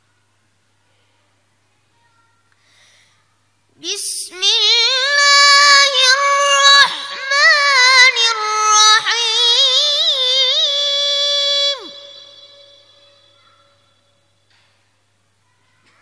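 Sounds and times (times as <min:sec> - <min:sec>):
boy chanting: 0:03.8 - 0:14.0.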